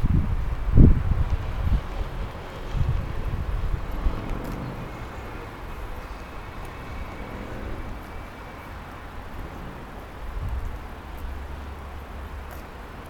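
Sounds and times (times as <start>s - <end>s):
distant road traffic hum: 0.0s - 13.0s
wind on microphone: 0.0s - 13.0s.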